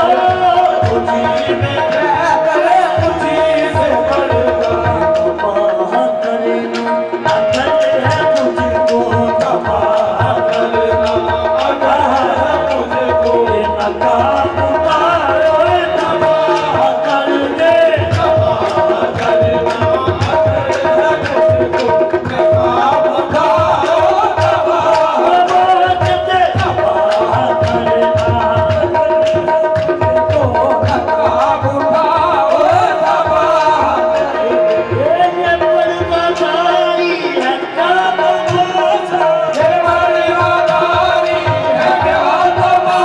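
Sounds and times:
harmonium held notes: 0.0s - 43.0s
tabla drumming: 0.0s - 43.0s
person singing: 30.7s - 43.0s.

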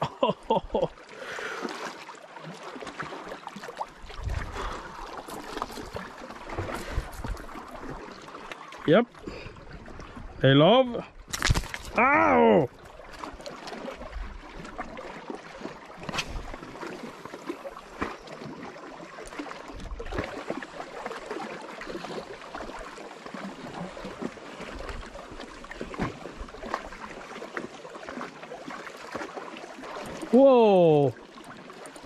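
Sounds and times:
waves lapping on rocks: 1.1s - 9.6s.

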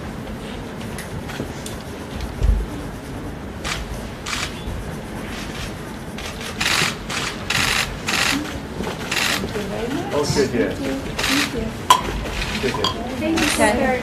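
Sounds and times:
camera shutters clicking: 3.7s - 4.6s.

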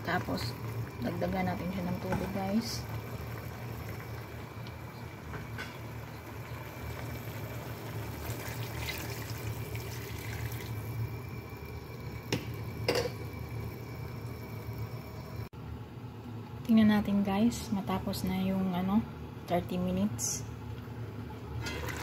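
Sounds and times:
water pouring and splashing: 7.0s - 10.9s.

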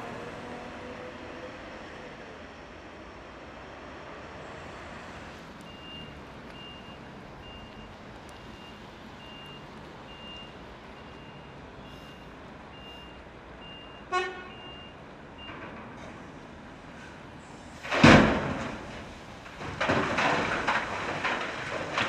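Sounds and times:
diesel engines running: 0.0s - 22.0s
reversing alarm beeping: 5.7s - 15.6s.

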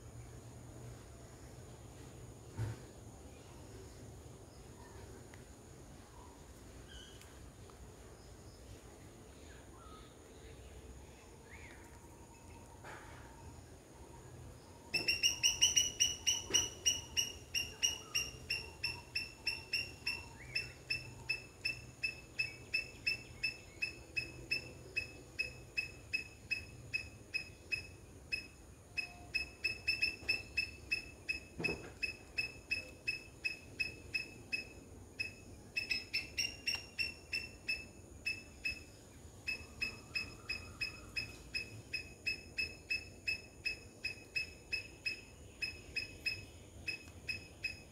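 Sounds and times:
high-pitched chirping call: 14.9s - 47.9s.

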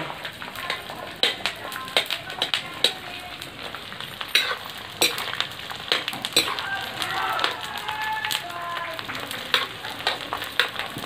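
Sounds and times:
ladle scraping and clinking pan: 0.0s - 6.6s
gum sizzling in hot oil: 0.0s - 11.0s.

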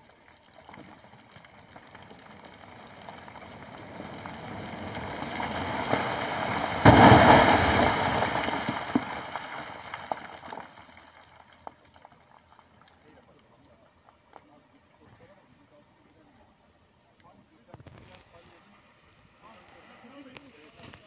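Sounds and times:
rumble of rockfall: 0.0s - 12.8s
clattering debris: 1.8s - 11.8s
heavy rock crash: 2.6s - 10.8s.

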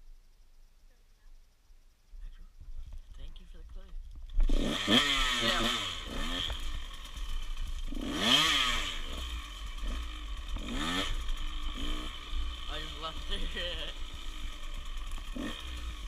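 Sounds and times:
dirt bike engine revving: 4.3s - 16.0s.

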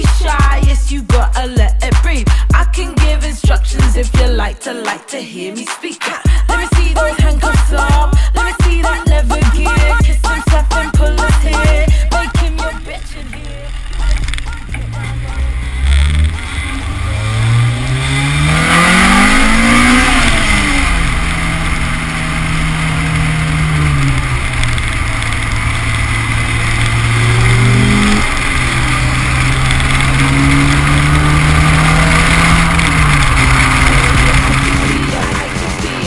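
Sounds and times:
car engine accelerating: 6.4s - 36.0s
wind and road noise: 12.9s - 36.0s.

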